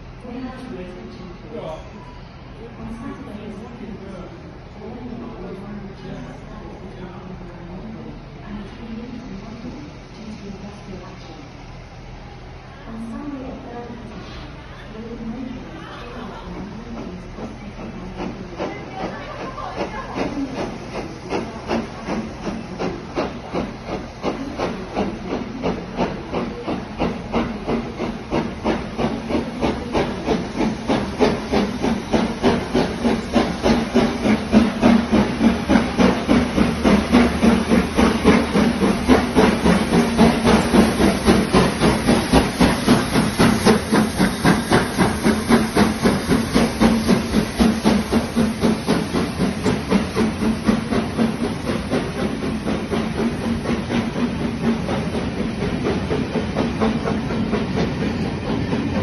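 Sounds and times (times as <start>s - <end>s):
steam hissing: 0.0s - 59.0s
steam locomotive chuffing: 0.0s - 59.0s.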